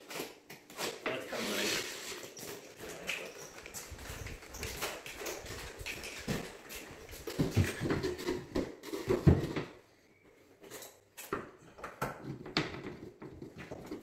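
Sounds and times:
footsteps on concrete floor: 0:02.1 - 0:09.7.

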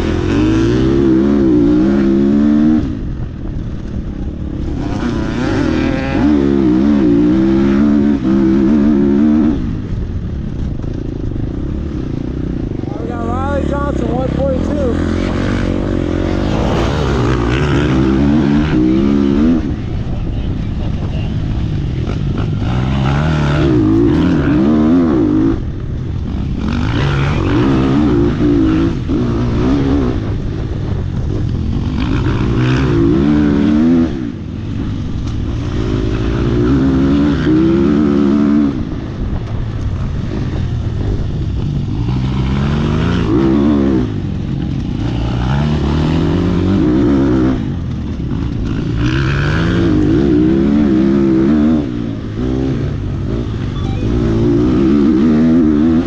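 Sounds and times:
wind rush: 0:00.0 - 0:36.7
dirt bike engine revving: 0:00.0 - 0:56.0.

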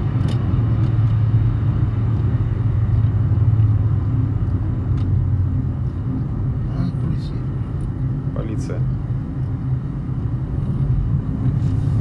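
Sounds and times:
car engine and tyre drone: 0:00.0 - 0:12.0.

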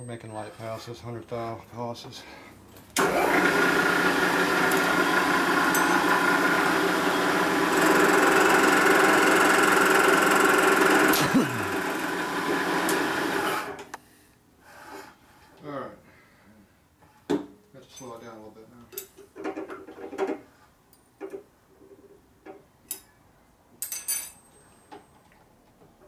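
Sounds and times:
milling machine cutting metal: 0:03.0 - 0:13.8.

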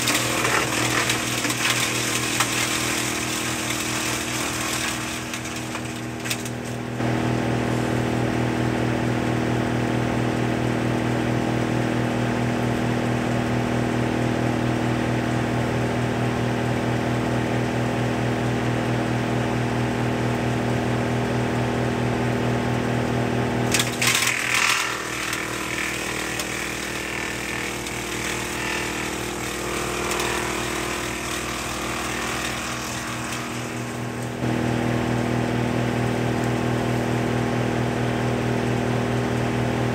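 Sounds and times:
branch crackling and shredding: 0:00.0 - 0:07.0, 0:23.7 - 0:34.4
wood chipper running: 0:00.0 - 0:39.9.

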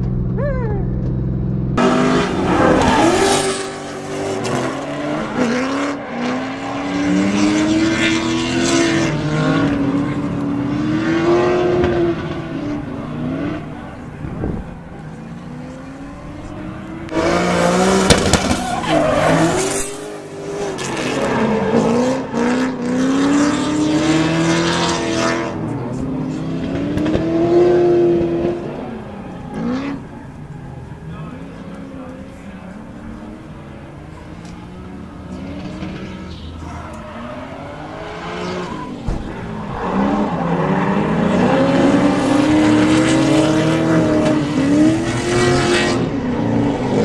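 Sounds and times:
car engines revving hard: 0:00.0 - 0:47.0
tyres screeching: 0:17.1 - 0:20.1.

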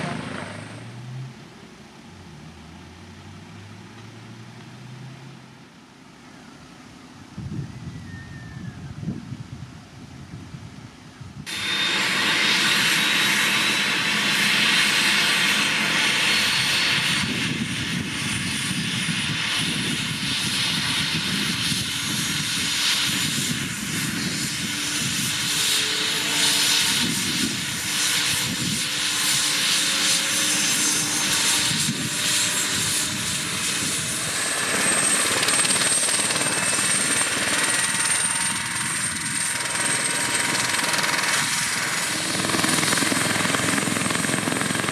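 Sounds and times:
helicopter rotor noise: 0:00.0 - 0:00.9, 0:11.4 - 0:44.9
helicopter turbine whine: 0:00.0 - 0:02.6, 0:04.3 - 0:44.9.

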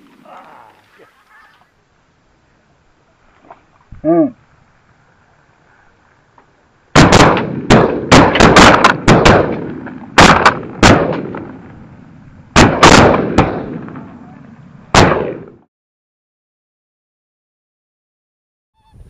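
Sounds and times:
shotgun shots with echo: 0:07.0 - 0:11.6, 0:12.6 - 0:14.0, 0:14.9 - 0:15.6.

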